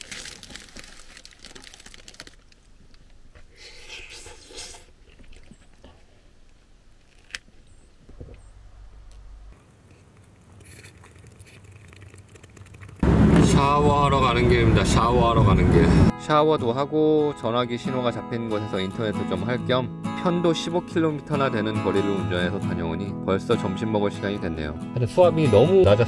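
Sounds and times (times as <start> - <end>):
person chewing crusty bread: 0.0 - 2.7, 9.2 - 13.0.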